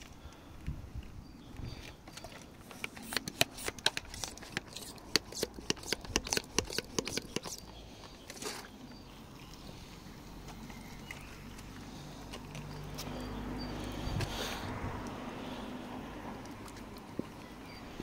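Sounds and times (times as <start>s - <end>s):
sprayer pump plastic clicks: 2.1s - 7.7s.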